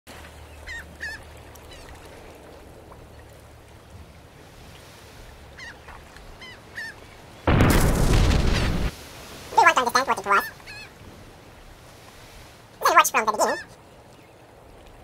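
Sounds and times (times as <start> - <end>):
wind and sea rumble: 0.1 - 15.0
seagulls crying: 13.0 - 13.7.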